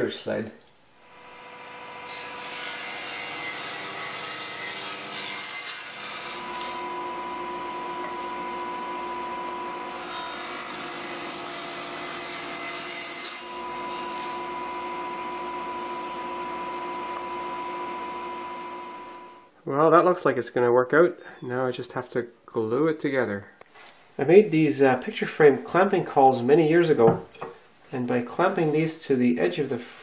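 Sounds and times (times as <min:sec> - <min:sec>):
saw cutting wood: 0:01.1 - 0:19.3
table saw running: 0:01.1 - 0:19.4.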